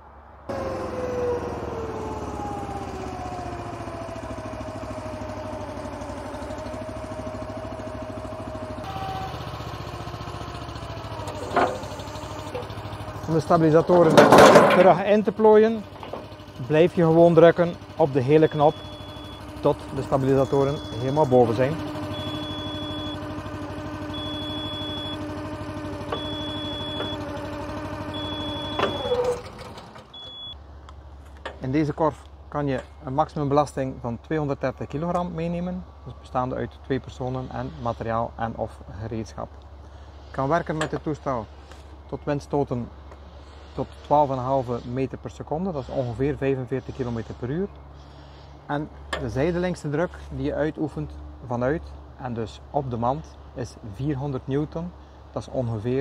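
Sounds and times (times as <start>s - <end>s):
hydraulic power unit whining: 0.5s - 56.0s
high warning beep: 18.4s - 23.3s, 24.1s - 25.3s, 26.1s - 27.3s, 28.1s - 29.4s, 30.2s - 30.6s.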